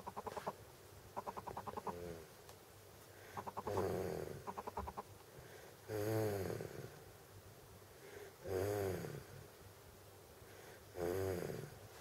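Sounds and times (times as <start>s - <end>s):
quiet breathing: 3.0s - 4.5s, 5.2s - 7.1s, 7.8s - 9.5s, 10.3s - 12.0s
child snoring: 11.0s - 11.7s.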